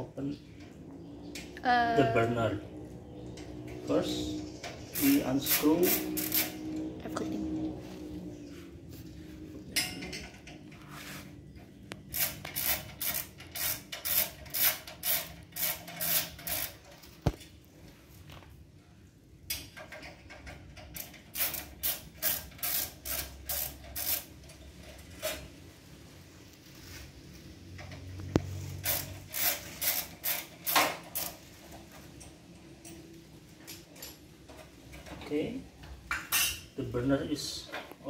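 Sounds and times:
screwdriver turning screws: 12.1s - 17.0s, 28.8s - 31.4s.

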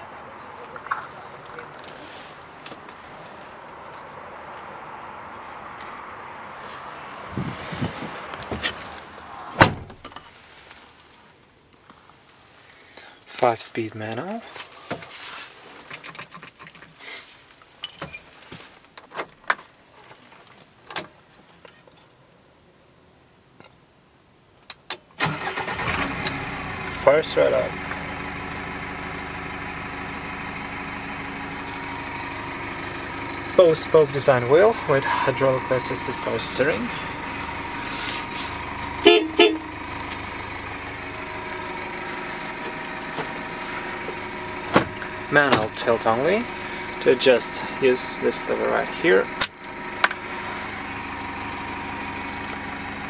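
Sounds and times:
keys jangling: 16.7s - 21.0s
engine idling hum: 25.3s - 53.0s
vehicle horn toots: 39.0s - 39.8s.

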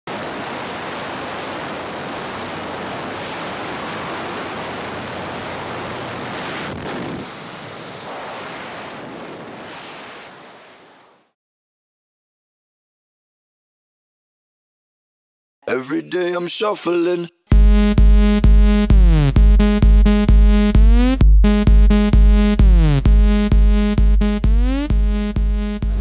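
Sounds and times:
wind rushing over microphone: 0.1s - 10.9s.

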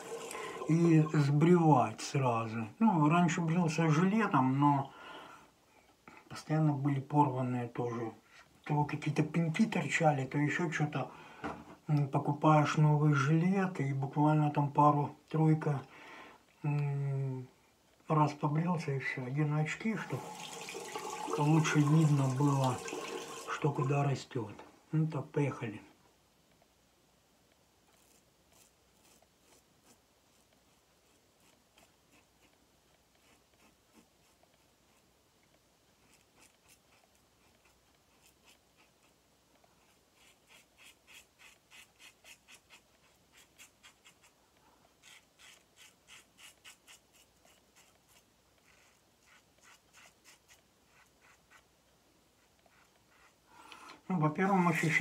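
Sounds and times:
razor scraping stubble: 27.8s - 35.1s, 36.0s - 44.4s, 45.0s - 51.7s, 52.4s - 53.4s.

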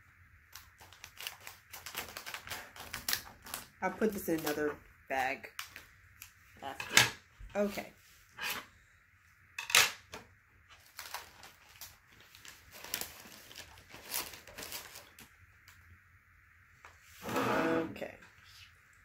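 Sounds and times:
plastic packaging crinkling: 0.5s - 4.6s, 10.7s - 15.8s.

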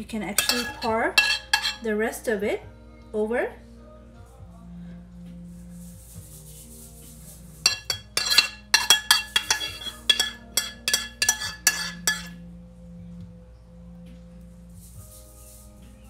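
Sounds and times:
metal spoon clinking in saucepan: 0.4s - 1.9s, 7.6s - 12.4s.

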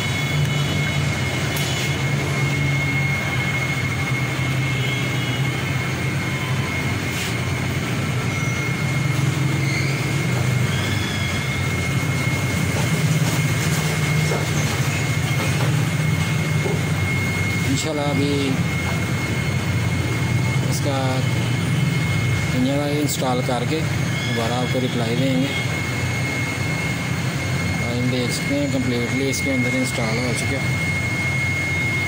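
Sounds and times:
high whine: 0.0s - 32.0s
low mechanical drone: 0.0s - 32.0s.

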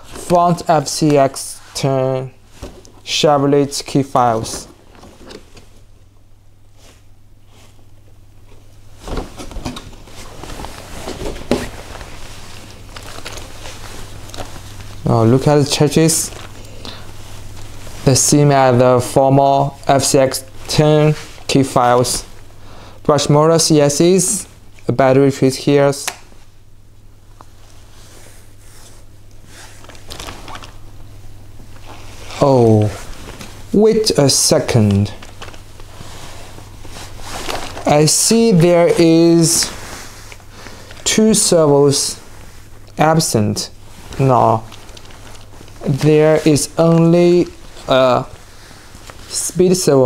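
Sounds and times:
plastic handling rustles: 0.0s - 22.6s, 27.3s - 50.0s
steady low hum: 0.0s - 50.0s
plastic body shell being handled: 7.7s - 15.4s, 29.7s - 33.8s, 34.7s - 38.7s, 43.7s - 49.4s.

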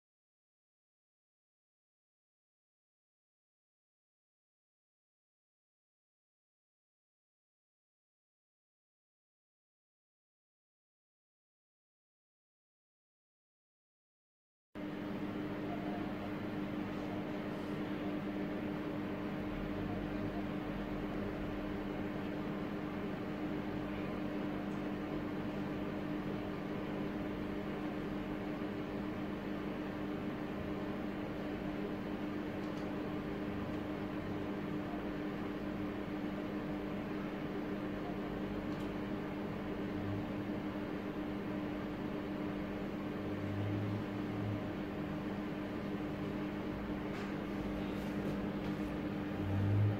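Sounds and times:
steady machine hum: 14.8s - 49.9s.

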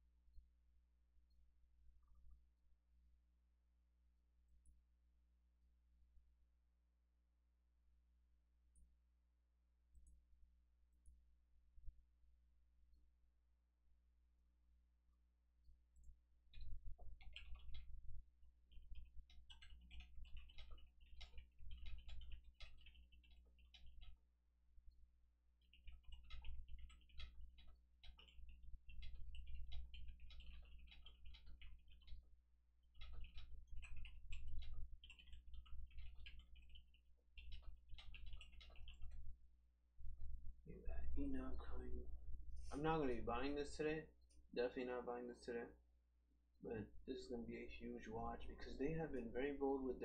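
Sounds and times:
steady low hum: 0.0s - 50.0s
soft irregular clicking: 1.2s - 2.7s, 9.9s - 12.0s, 15.1s - 42.7s
typing on computer keyboard: 16.0s - 24.3s, 25.6s - 39.4s.

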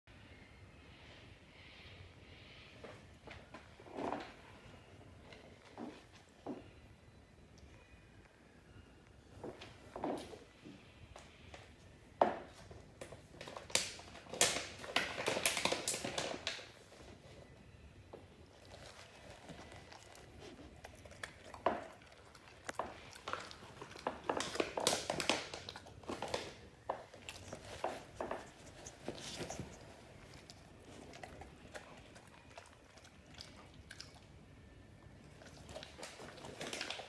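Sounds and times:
dog crunching dry treats: 12.6s - 17.2s, 18.4s - 34.4s, 35.2s - 37.0s.

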